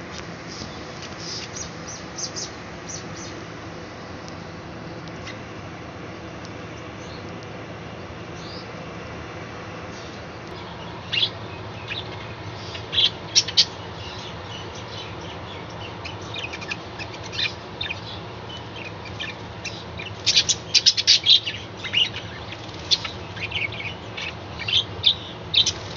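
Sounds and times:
budgerigars chirping: 10.0 - 25.9.

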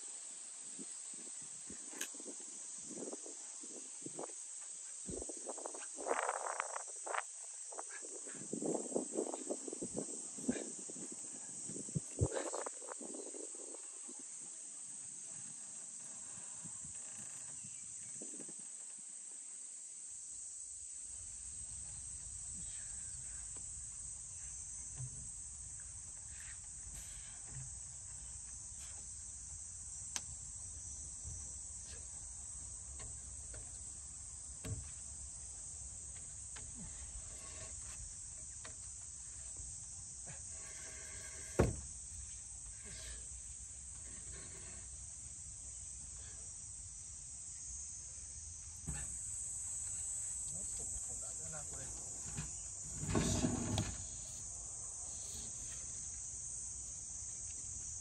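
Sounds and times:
insects chirring: 0.0 - 58.0
knocks and thumps: 41.5 - 41.9.

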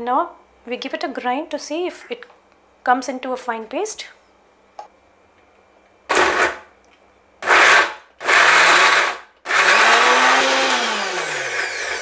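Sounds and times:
mixer grinder motor pulsing: 7.4 - 12.0.

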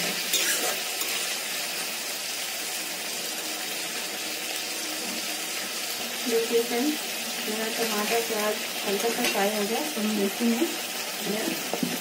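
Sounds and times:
onions and tomatoes sizzling in oil: 0.0 - 12.0.

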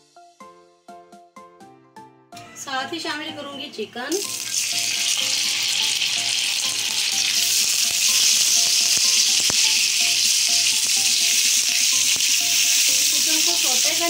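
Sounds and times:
chicken sizzling in hot oil: 4.2 - 14.0.

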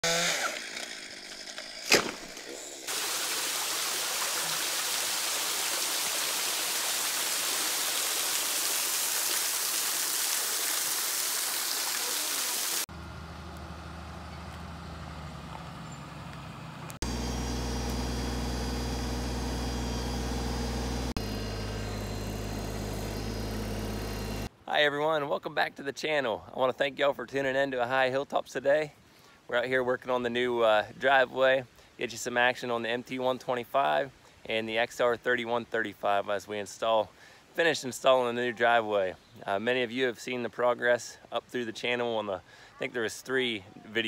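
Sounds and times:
waterfall splashing: 1.9 - 12.9
tractor diesel engine humming: 12.9 - 24.5.

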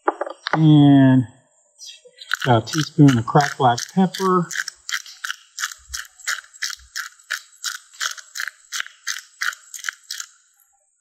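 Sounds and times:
pepper mill grinding: 2.2 - 10.4.

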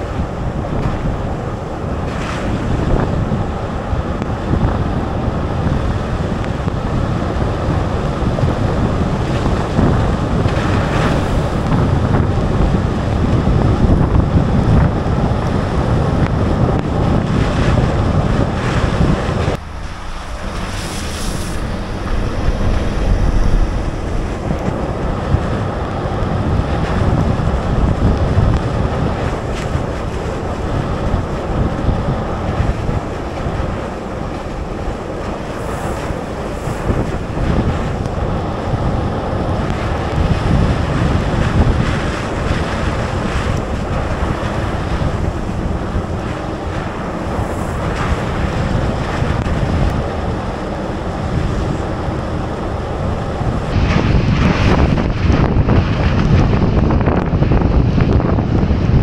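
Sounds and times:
wind buffeting microphone: 0.0 - 59.0
tyres hissing on wet road: 19.5 - 23.8.

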